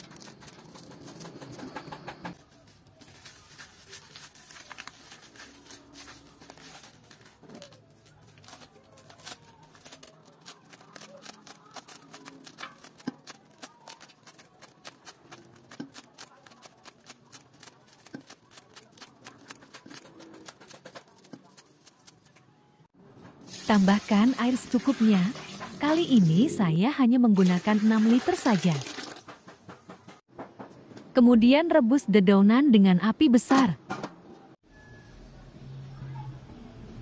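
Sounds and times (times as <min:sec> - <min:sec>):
scissors snipping leaves: 0:08.3 - 0:22.3.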